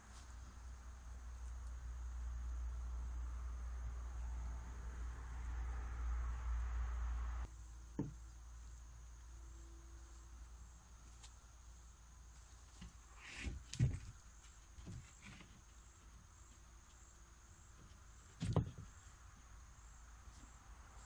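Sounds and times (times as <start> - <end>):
insects droning: 0.0 - 21.0
wood thumping on sub-floor: 8.0 - 8.2, 12.8 - 14.2, 17.8 - 18.9.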